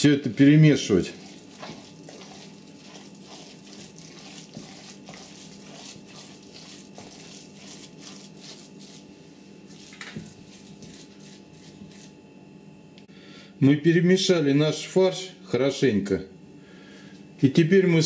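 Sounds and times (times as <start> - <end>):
faint steady hum: 0.0 - 18.0
spatula stirring wet mince: 0.2 - 12.2.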